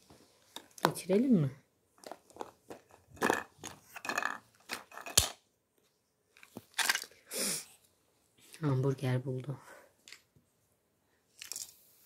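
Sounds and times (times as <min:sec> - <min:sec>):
toys knocking together: 0:02.0 - 0:05.4.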